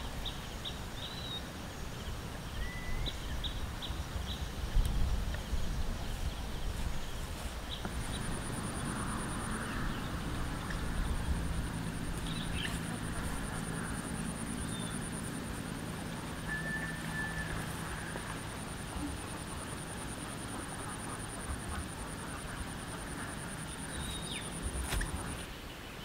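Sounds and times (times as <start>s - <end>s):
bird chirps: 16.4s - 18.2s.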